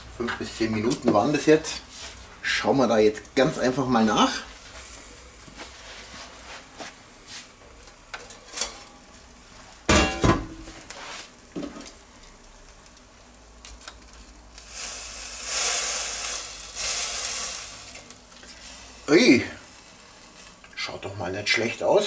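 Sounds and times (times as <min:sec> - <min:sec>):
bacon sizzling: 0:08.8 - 0:21.4.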